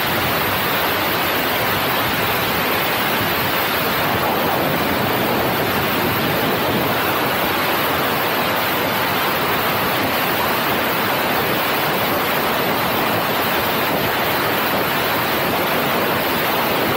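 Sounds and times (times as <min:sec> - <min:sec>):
wind over microphone: 0:00.0 - 0:16.9
passenger train running at speed: 0:01.1 - 0:14.1.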